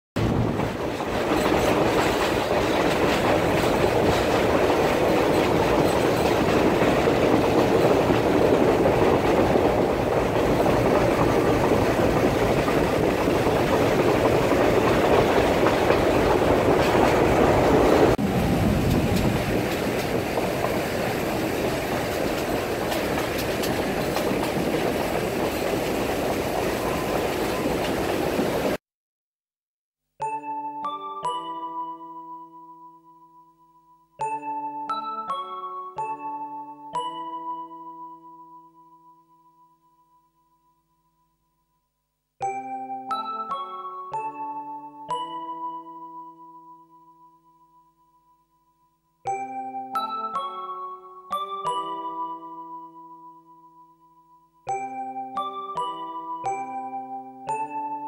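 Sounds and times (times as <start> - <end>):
train clatter: 0.2 - 28.8
train wheel and rail noise: 0.2 - 28.8.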